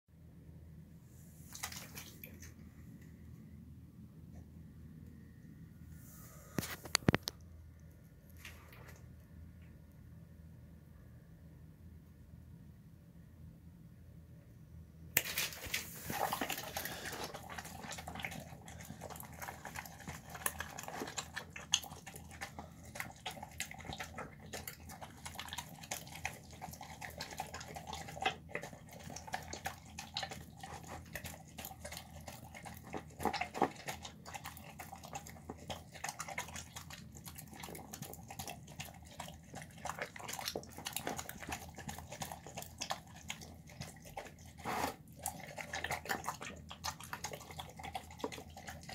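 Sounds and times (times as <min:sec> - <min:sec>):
dog chewing food: 0:15.2 - 0:48.9.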